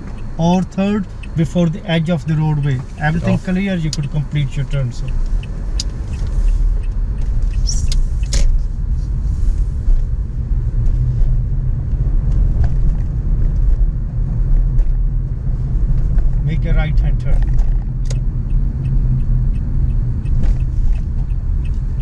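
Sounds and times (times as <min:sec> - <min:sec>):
car engine and tyre rumble: 0:00.0 - 0:22.0.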